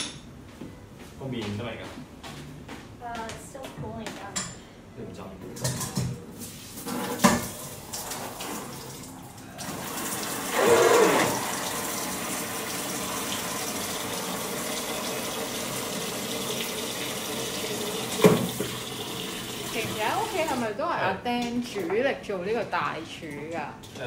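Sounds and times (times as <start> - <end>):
tap water running into sink: 6.8 - 20.6.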